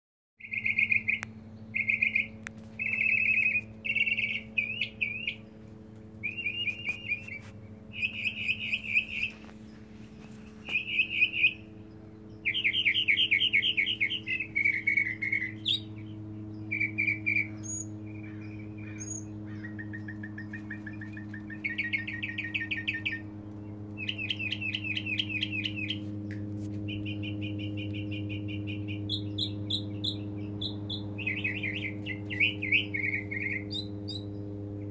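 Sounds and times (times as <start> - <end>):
mockingbird singing: 0.4 - 34.9
steady low hum: 0.4 - 34.9.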